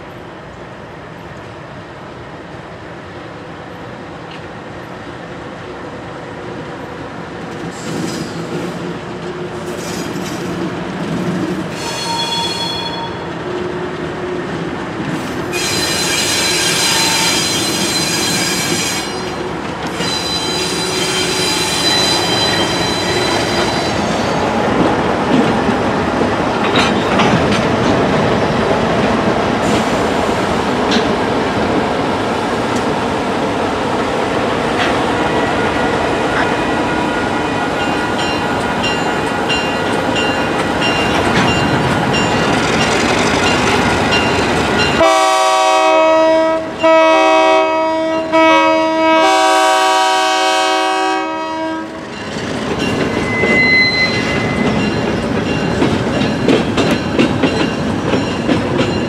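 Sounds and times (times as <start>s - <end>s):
diesel locomotives running: 3.5s - 59.0s
high-pitched wheel squeal: 11.7s - 13.2s, 15.5s - 19.3s, 19.9s - 24.4s, 53.0s - 54.8s.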